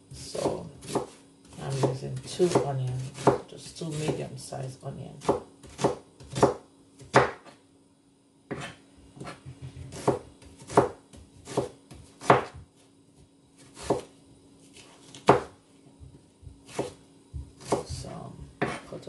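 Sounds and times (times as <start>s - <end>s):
knife chopping on plastic board: 0.4s - 4.2s, 5.2s - 7.6s, 8.5s - 12.7s, 13.6s - 14.1s, 14.7s - 18.9s.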